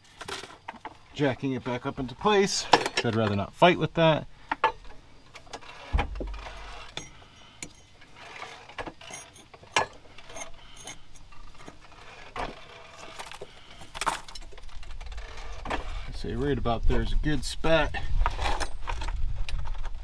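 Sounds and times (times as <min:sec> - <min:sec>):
metal tools clinking: 0:04.6 - 0:11.8.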